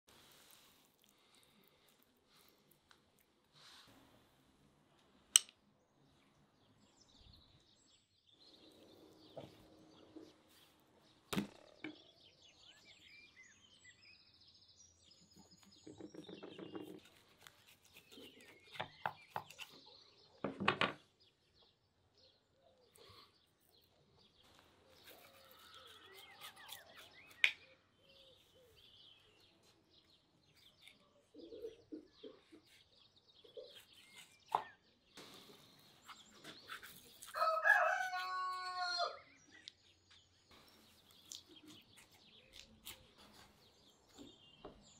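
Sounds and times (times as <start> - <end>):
birds chirping: 5.8 - 44.9
knife cutting and scraping meat: 16.8 - 19.9, 24.5 - 27.7, 32.6 - 38.4, 41.0 - 44.2.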